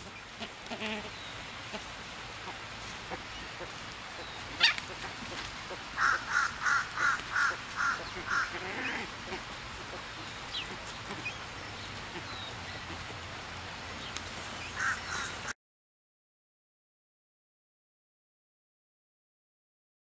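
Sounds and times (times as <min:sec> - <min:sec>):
ibis calling: 0:00.0 - 0:13.3, 0:14.0 - 0:15.5
steady background hiss: 0:00.0 - 0:15.5.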